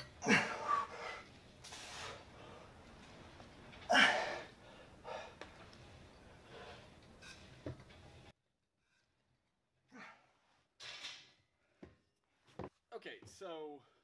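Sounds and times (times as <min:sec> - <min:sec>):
man breathing heavily: 0:00.2 - 0:03.0, 0:03.9 - 0:07.0.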